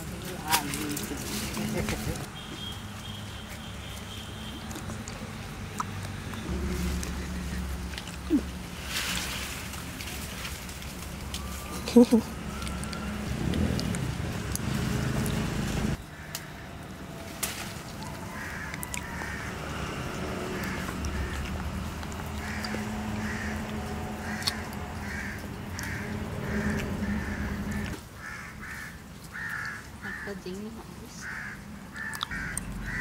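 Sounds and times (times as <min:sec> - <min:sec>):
crows cawing: 0:16.0 - 0:30.4, 0:31.2 - 0:33.0.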